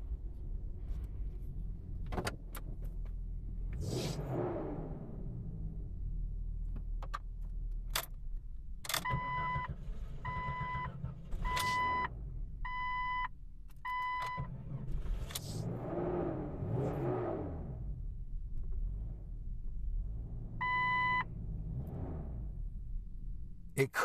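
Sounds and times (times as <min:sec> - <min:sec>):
car dashboard warning chime: 0:20.6 - 0:21.3.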